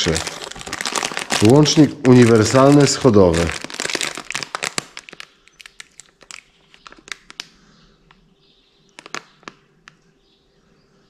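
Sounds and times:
plastic bag crinkling: 0.0 - 7.6, 8.9 - 10.0.

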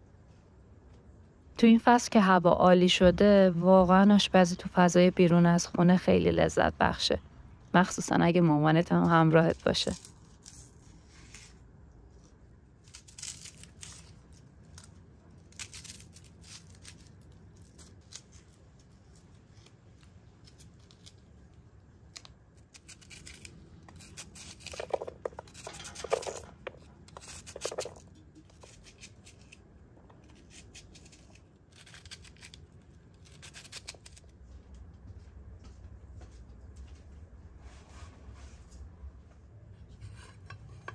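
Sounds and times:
knife cutting onion: 22.6 - 29.6.

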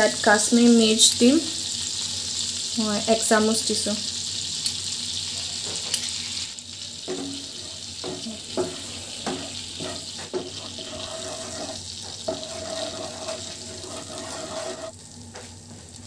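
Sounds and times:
butter sizzling in a frying pan: 0.0 - 16.0
wooden spatula scraping pan: 7.1 - 15.0.

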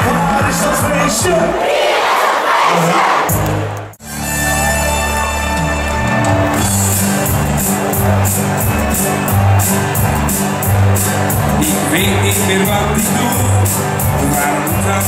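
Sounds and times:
live band music: 3.0 - 15.0
low bass notes: 3.3 - 15.0
drums with cymbal beat: 5.5 - 15.0.

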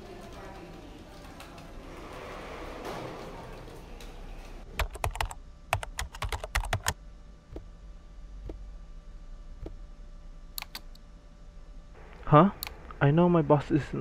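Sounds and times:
computer keyboard typing: 0.0 - 1.9, 3.5 - 7.0, 10.6 - 10.9.

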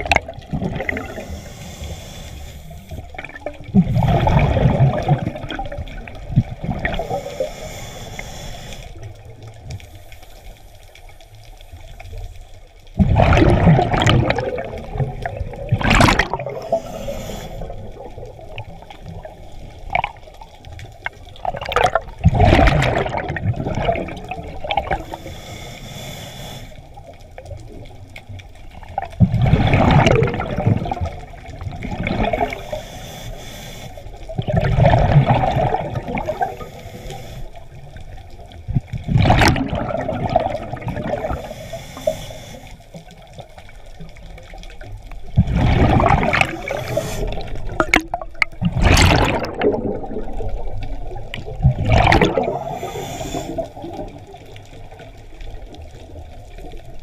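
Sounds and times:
bubbling exhalations of scuba diver: 0.0 - 2.2, 2.9 - 7.8, 13.0 - 20.4, 21.0 - 25.2, 28.7 - 32.9, 34.3 - 38.0, 38.6 - 42.2, 45.0 - 55.7
faint hiss of inhalation: 0.9 - 3.2, 7.0 - 9.2, 9.8 - 12.4, 16.5 - 18.1, 24.9 - 27.0, 32.4 - 34.3, 36.3 - 37.8, 41.1 - 43.1, 46.4 - 47.7, 52.5 - 54.0.

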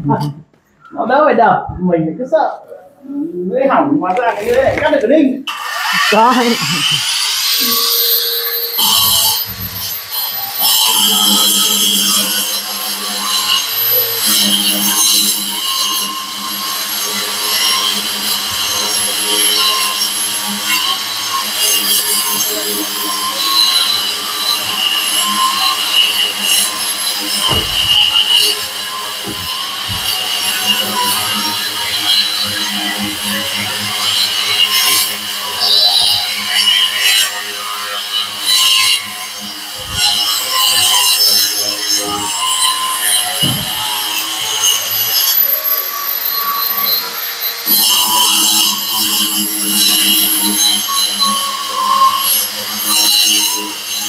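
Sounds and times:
wall chaser motor whining: 5.5 - 48.5
blades grinding into wall: 26.2 - 31.0.

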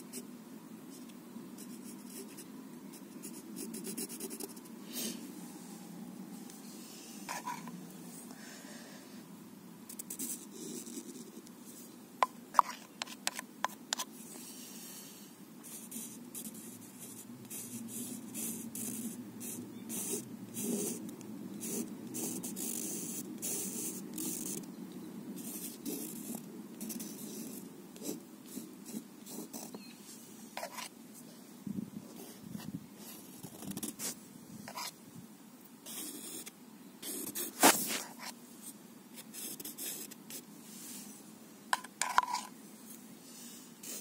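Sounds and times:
low background noise: 0.0 - 44.0
scratchy strokes on paper: 6.6 - 8.2, 12.5 - 24.6, 25.4 - 30.9, 32.1 - 35.0, 35.8 - 44.0.

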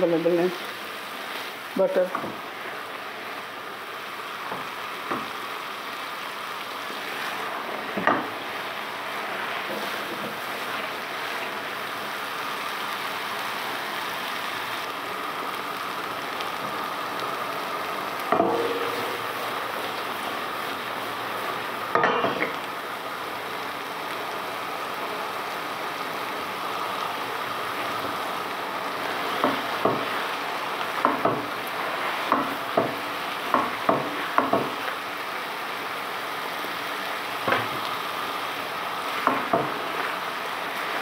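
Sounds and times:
curry sizzling in pot: 0.0 - 41.0
pot clunk with metallic ring: 18.3 - 19.1, 22.0 - 22.5.

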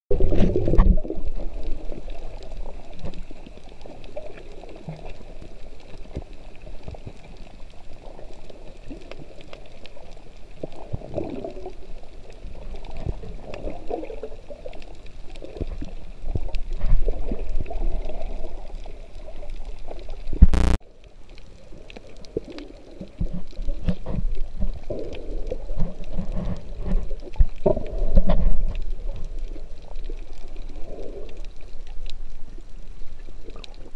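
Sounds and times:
muffled underwater rumbling: 0.1 - 20.8.

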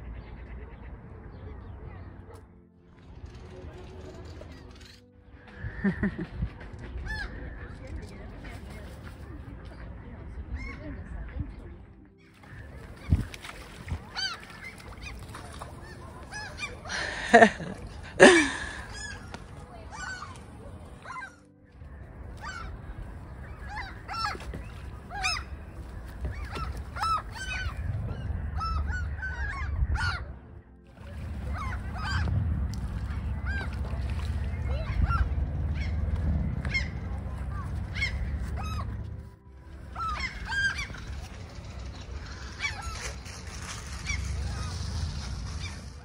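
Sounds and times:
gulls calling: 12.0 - 46.0.

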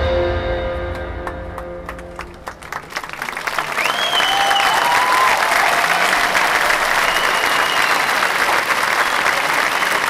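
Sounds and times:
crowd applauding: 1.2 - 10.0
whistles: 3.6 - 5.4, 6.8 - 8.3, 9.0 - 10.0.

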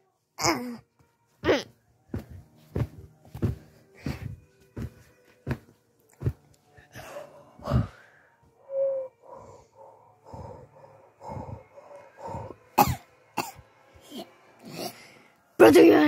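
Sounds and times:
person puffing breaths: 3.9 - 4.4, 9.2 - 12.8
person coughing: 12.8 - 14.9.

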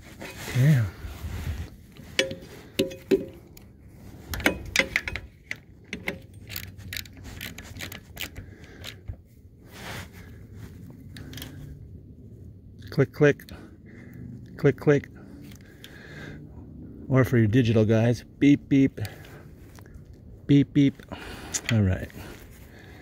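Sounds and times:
metal clicks of hand tools: 2.0 - 3.7, 4.3 - 9.2.

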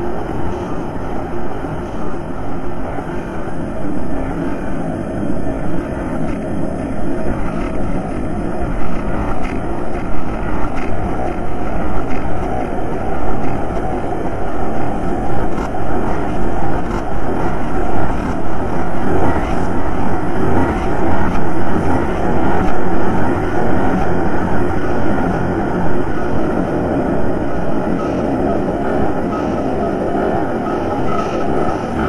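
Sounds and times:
deep churning drone: 0.0 - 32.0.

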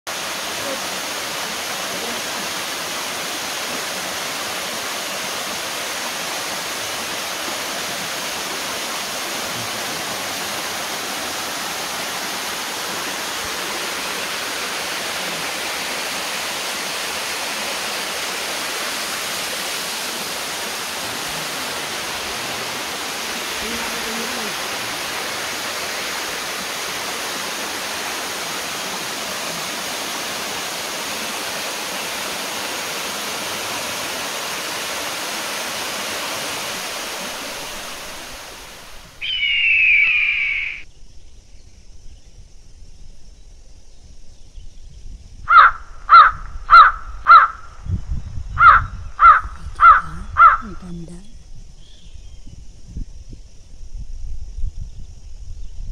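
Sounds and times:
waterfall and stream rushing: 0.1 - 40.9
crow cawing: 39.2 - 40.8, 45.5 - 47.7, 48.6 - 50.7
high warbling bird call: 39.2 - 40.9.

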